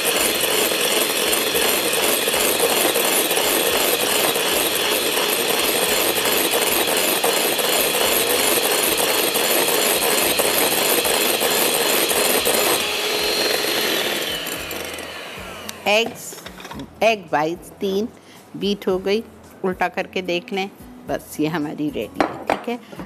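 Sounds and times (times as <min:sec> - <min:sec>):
electric mixer motor whine: 0:00.0 - 0:16.2.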